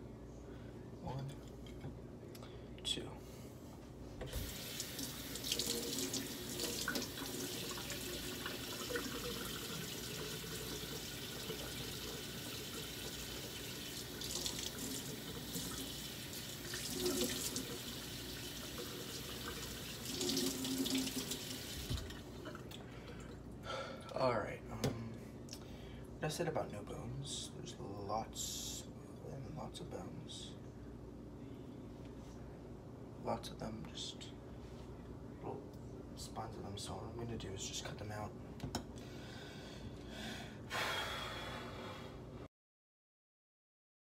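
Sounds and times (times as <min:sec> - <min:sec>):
faucet running into a sink: 0:04.3 - 0:22.6.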